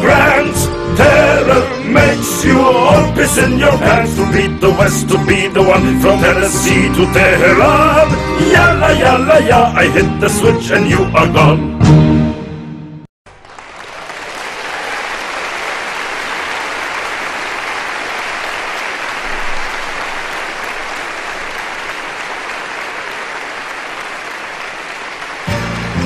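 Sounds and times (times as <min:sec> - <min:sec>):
audience applauding: 0:13.3 - 0:26.0.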